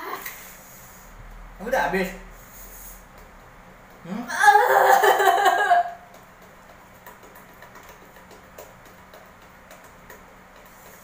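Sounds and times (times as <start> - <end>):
faint clicks and ticks: 6.1 - 11.0.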